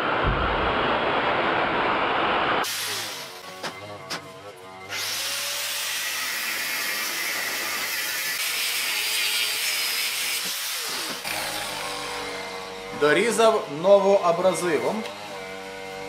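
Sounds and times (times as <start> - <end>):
angle grinder cutting steel: 2.6 - 16.0.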